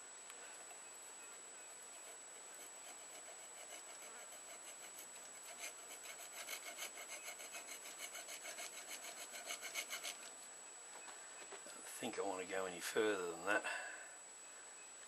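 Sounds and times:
file rasping on steel blade: 1.9 - 10.3.

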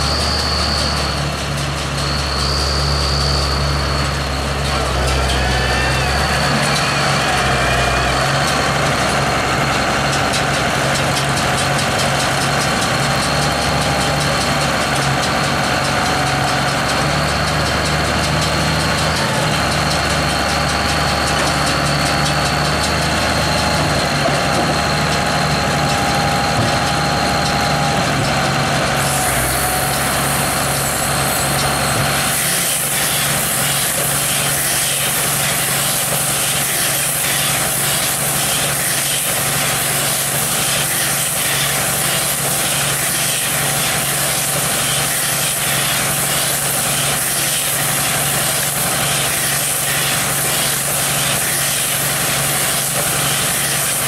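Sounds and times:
machinery clatter: 0.0 - 54.0
tractor diesel engine running: 0.0 - 54.0
loud hiss: 29.0 - 54.0.

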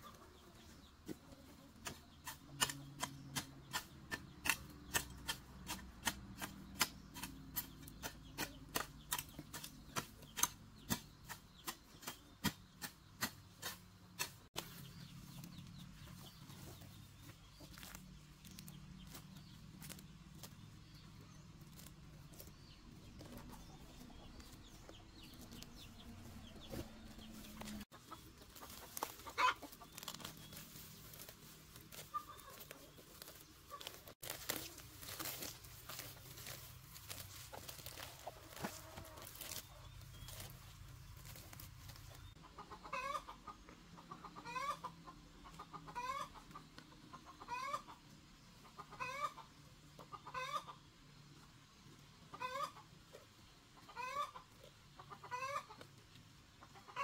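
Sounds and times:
hens clucking: 0.0 - 57.0
hoe striking soil: 1.8 - 14.8
rustle of weeds pulled up: 28.5 - 42.2.

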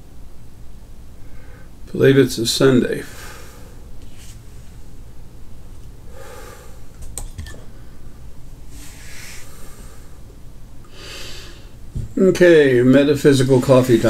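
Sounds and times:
steady low hum: 0.0 - 14.0
man breathing softly: 1.2 - 1.8, 6.1 - 6.9, 8.7 - 11.8.

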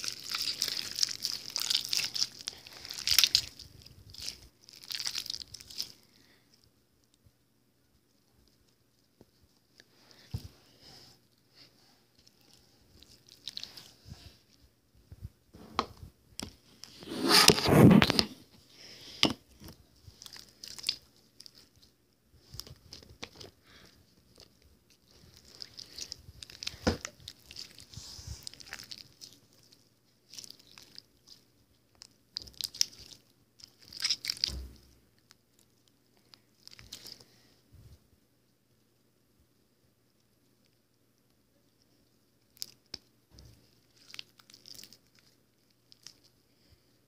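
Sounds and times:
slime squishing and popping: 0.0 - 6.0, 32.0 - 34.9.

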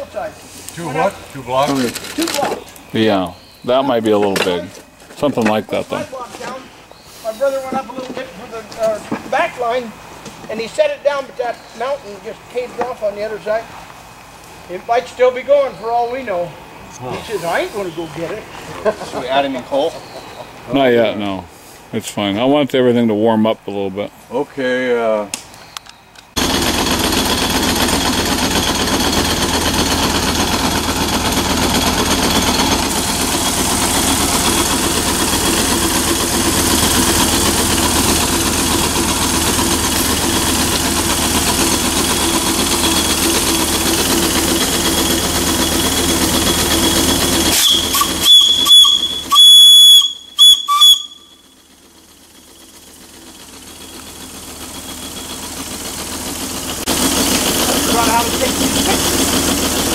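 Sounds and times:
steam boiler hissing: 5.8 - 8.6, 10.8 - 18.6, 26.4 - 59.9
steam whistle toots: 46.4 - 51.6.

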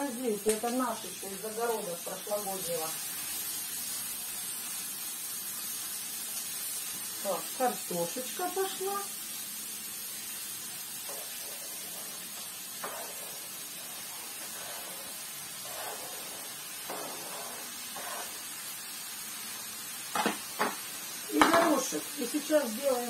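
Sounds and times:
oil sizzling in a frying pan: 0.0 - 23.0
cutting board knocking on counter: 20.1 - 20.8.

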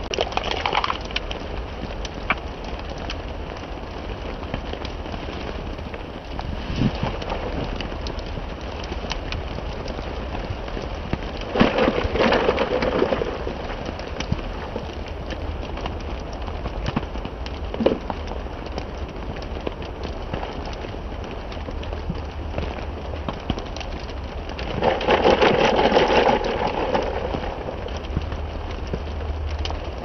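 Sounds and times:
raindrops ticking: 0.0 - 30.0
steady rain: 0.0 - 30.0
dense clatter: 24.6 - 28.4.

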